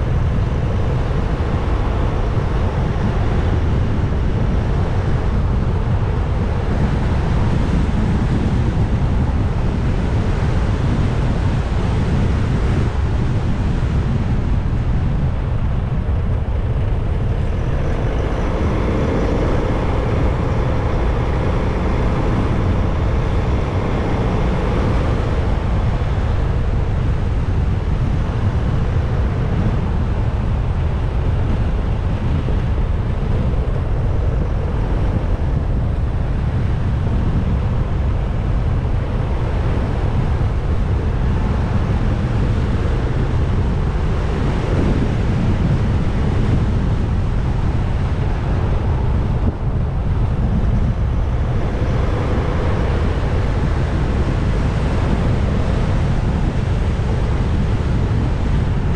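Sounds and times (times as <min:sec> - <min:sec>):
motorcycle engine and road noise: 0:00.0 - 0:58.9
wind rushing over microphone: 0:00.0 - 0:58.9.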